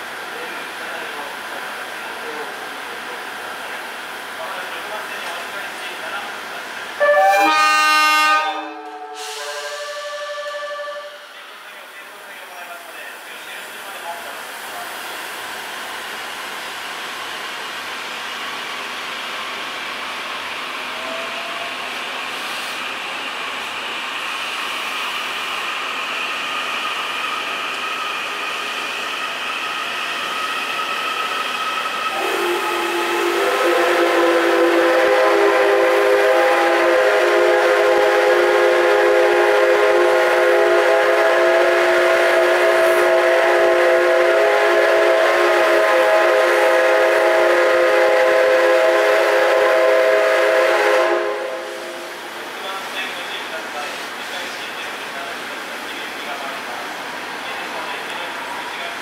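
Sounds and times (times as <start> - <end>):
steam locomotive whistle: 7.0 - 11.4, 20.9 - 21.9, 31.2 - 52.2.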